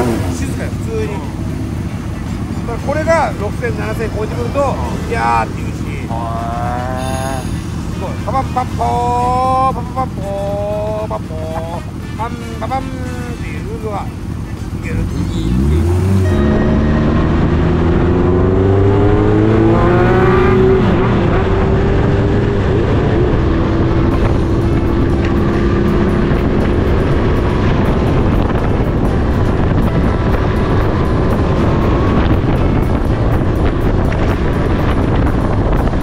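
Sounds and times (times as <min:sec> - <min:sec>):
motorcycle engine accelerating: 0:00.0 - 0:36.0
wind rushing: 0:15.5 - 0:36.0.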